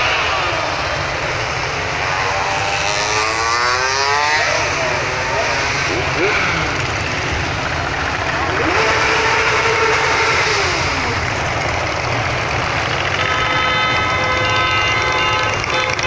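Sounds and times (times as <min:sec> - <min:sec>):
motorcycles riding past: 0:00.0 - 0:16.0
horn sounding steadily: 0:08.1 - 0:16.0.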